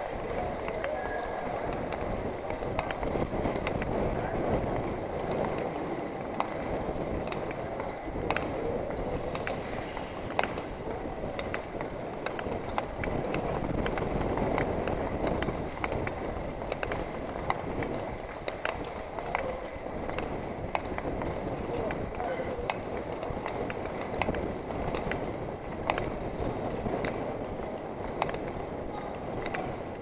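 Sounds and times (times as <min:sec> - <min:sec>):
skate blades scraping ice: 0:04.8 - 0:30.0
rush of air: 0:08.5 - 0:14.5.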